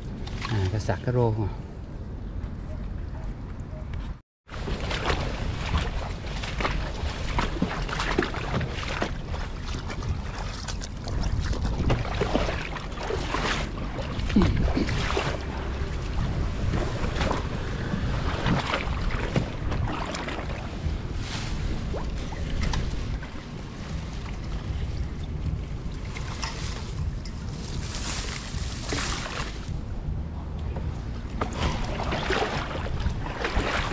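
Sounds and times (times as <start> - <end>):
wind rumbling on microphone: 1.6 - 33.9
wet grass rustling: 4.5 - 29.9
water noise: 4.5 - 33.9.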